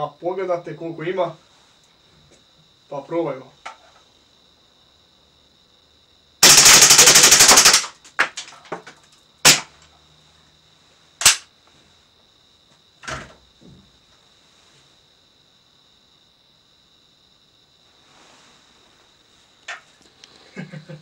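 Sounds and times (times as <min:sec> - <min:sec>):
airsoft pistol full-auto burst: 0:06.4 - 0:08.0, 0:09.5 - 0:09.7, 0:11.2 - 0:11.4.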